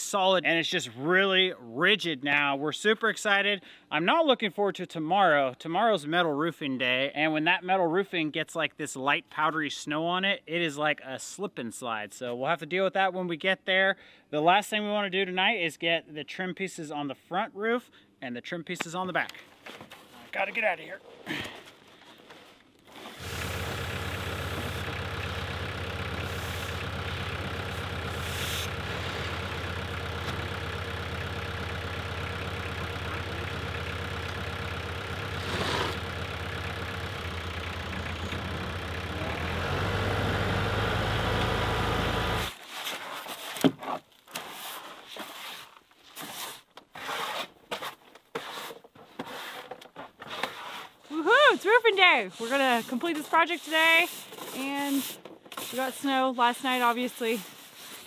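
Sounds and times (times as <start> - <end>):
engine running: 23.2 - 42.5.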